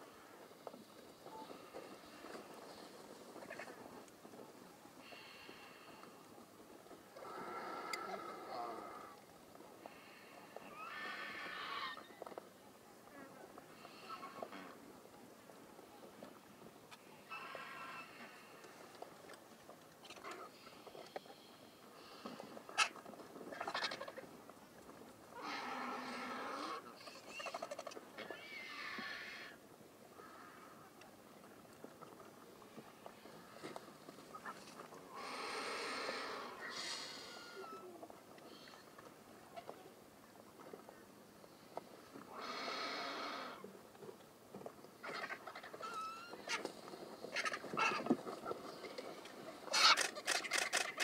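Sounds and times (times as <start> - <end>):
vultures calling harshly: 10.0 - 12.1, 17.2 - 18.5, 22.7 - 24.2, 25.4 - 29.6, 34.3 - 37.9, 42.3 - 43.6, 45.0 - 48.6, 49.7 - 51.0.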